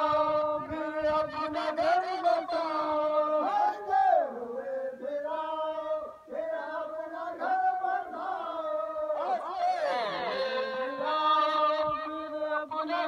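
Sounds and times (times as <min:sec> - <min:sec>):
men chanting a mourning lament: 0:00.0 - 0:13.0
amplified lead voice over loudspeaker: 0:08.5 - 0:13.0.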